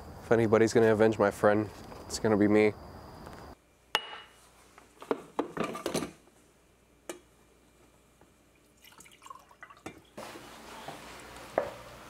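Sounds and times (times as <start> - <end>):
coffee pouring into mug: 8.6 - 10.2
liquid dribbles: 8.6 - 10.2.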